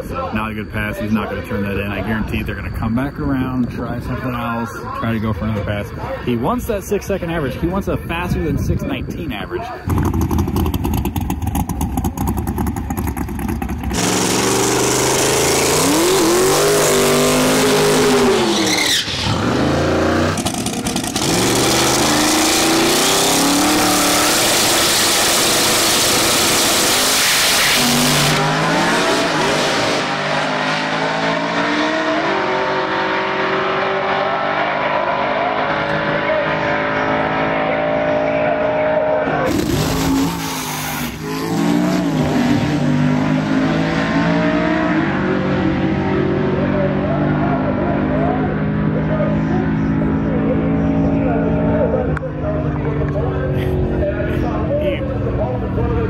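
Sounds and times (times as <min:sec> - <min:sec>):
drag race car engines revving: 0:07.7 - 0:56.0.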